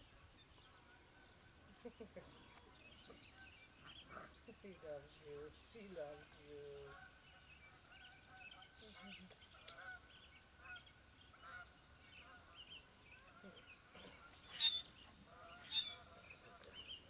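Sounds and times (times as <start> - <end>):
puppies squeaking and yipping: 14.5 - 14.9, 15.6 - 16.0.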